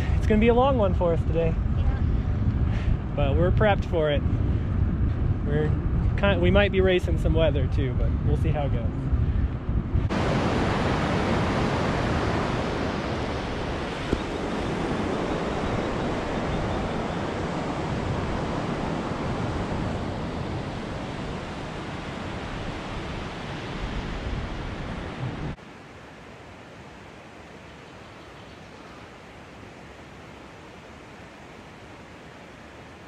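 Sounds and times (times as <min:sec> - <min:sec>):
wind on the microphone: 0:00.0 - 0:25.6.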